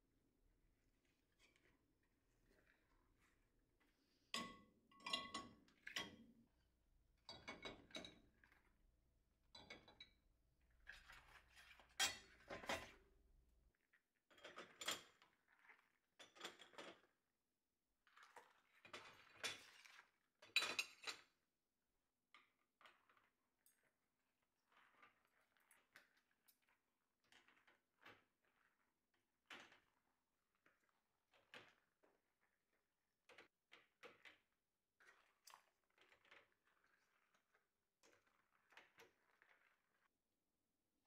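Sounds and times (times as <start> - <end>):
dishes clinking and clattering: 4.4 - 6.2, 11.9 - 13.0, 20.5 - 21.3.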